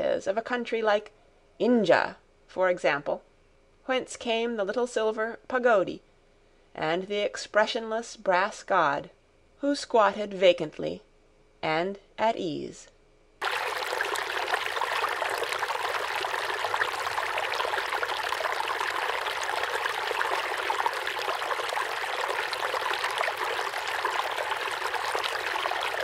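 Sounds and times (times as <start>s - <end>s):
stream trickling: 13.4s - 26.0s.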